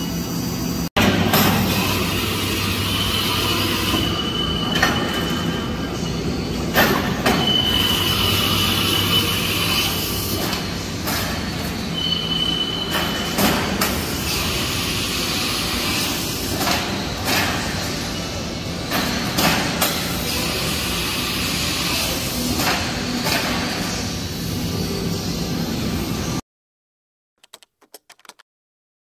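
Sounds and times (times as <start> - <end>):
high-pitched whine: 0.0 - 19.3.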